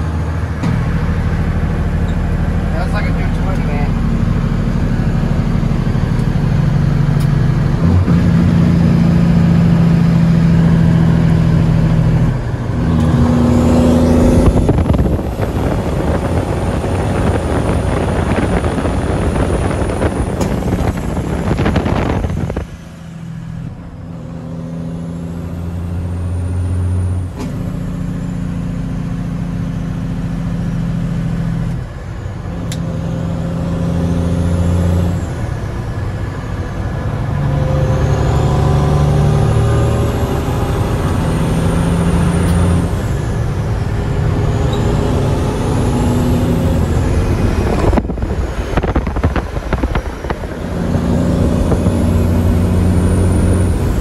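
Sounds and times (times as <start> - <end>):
loud rough rushing noise: 0.0 - 24.0, 35.1 - 54.0
diesel truck engine: 0.0 - 54.0.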